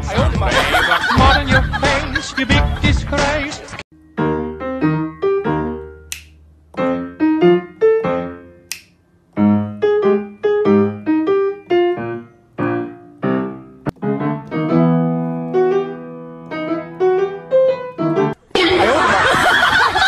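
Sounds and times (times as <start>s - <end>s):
piano tune: 0.6s - 20.0s
sharp click: 6.1s - 6.8s, 8.7s - 9.0s.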